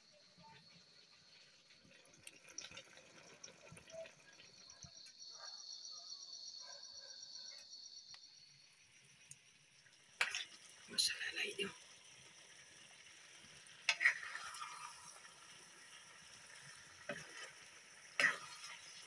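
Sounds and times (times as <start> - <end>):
high insect trill: 3.9 - 19.0.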